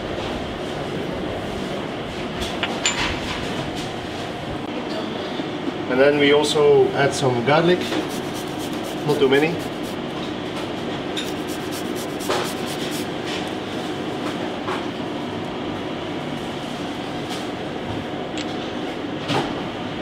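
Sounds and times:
kitchen ventilation hum: 0.0s - 20.0s
grater scraping steel bowl: 7.9s - 10.0s, 11.2s - 13.1s.

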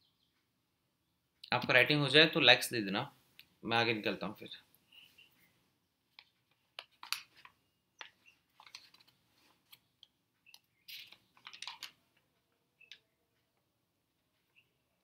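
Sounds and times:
faint keyboard typing: 6.1s - 14.6s.

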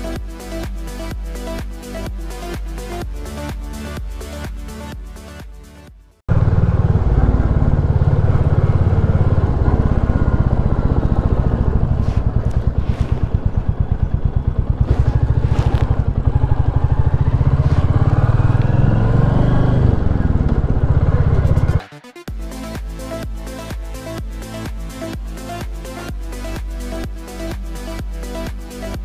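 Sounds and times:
motorcycle engine running: 6.3s - 29.0s.

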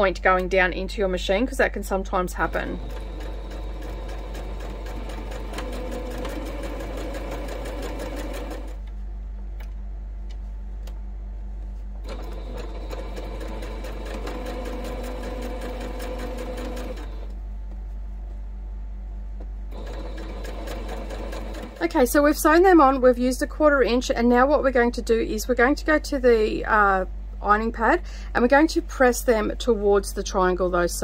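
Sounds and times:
electric sewing machine stitching: 2.2s - 8.8s, 12.0s - 17.3s, 19.7s - 22.0s.

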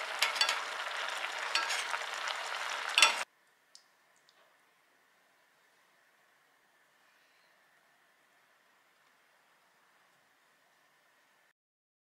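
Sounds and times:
broth bubbling and sizzling: 0.0s - 3.3s.

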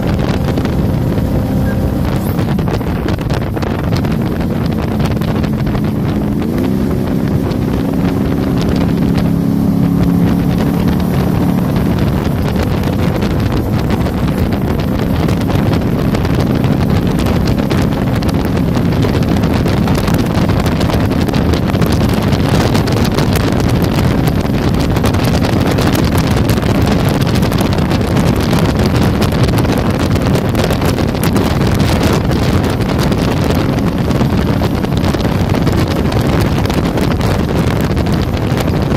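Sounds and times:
steady rush: 0.0s - 27.1s
boat engine running at speed: 0.0s - 38.9s
wind buffeting microphone: 0.0s - 38.9s.

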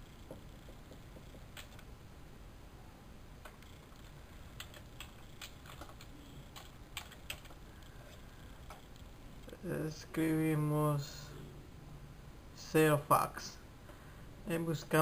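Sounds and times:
low steady hiss: 0.0s - 15.0s
keyboard keystrokes: 0.6s - 1.9s, 4.6s - 7.6s.

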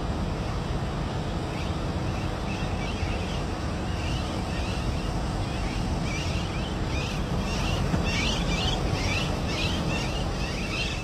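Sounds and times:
birds chirping: 1.6s - 11.0s.

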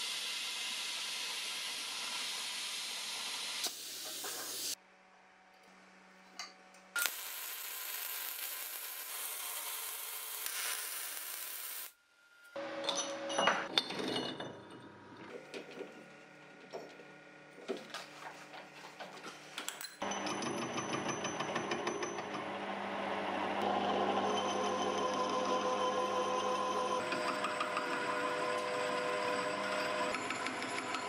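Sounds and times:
arc welding crackling hiss: 0.0s - 4.8s, 7.0s - 12.0s
metal lathe humming: 22.3s - 31.0s.

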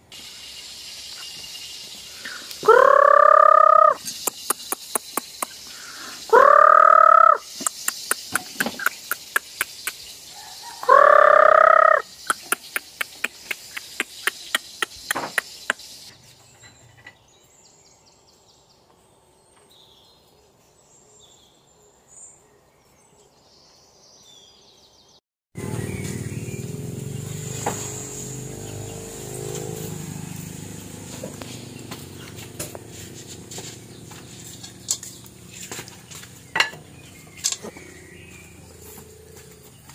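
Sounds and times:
loud chicken calls: 2.2s - 4.0s, 5.9s - 7.5s, 10.3s - 12.5s.

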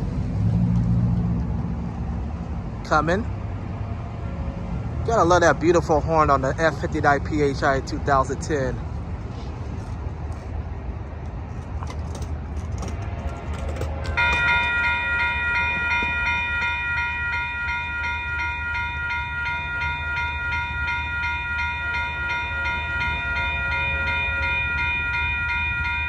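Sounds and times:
crossing warning bell ringing: 11.9s - 26.0s.

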